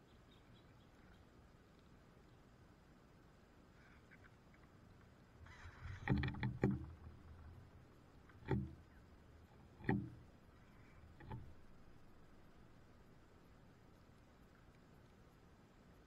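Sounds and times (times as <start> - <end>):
birds knocking on wooden feeder: 5.5 - 13.0.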